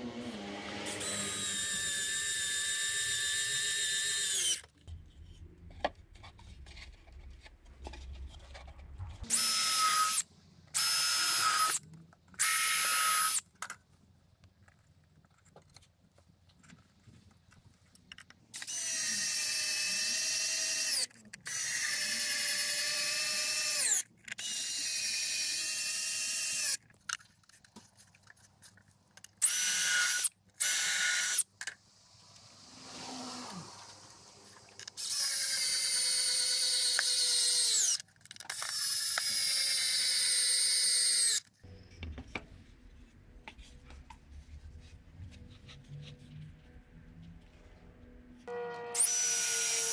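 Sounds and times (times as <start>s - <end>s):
electric drill running: 0.0s - 4.6s, 18.6s - 26.8s, 29.4s - 31.5s, 34.7s - 41.5s, 48.9s - 49.9s
soft rushing noise: 31.8s - 34.8s.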